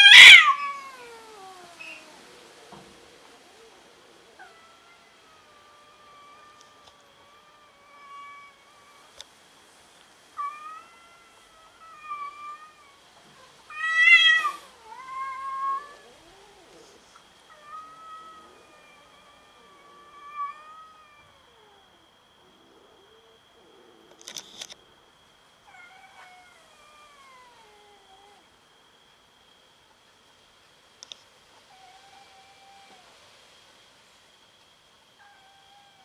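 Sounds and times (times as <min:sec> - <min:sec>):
cat hissing: 0:00.0 - 0:09.2, 0:10.3 - 0:21.9
cats yowling: 0:00.0 - 0:09.2, 0:10.4 - 0:24.4, 0:25.6 - 0:28.6, 0:31.6 - 0:33.2, 0:35.1 - 0:36.0.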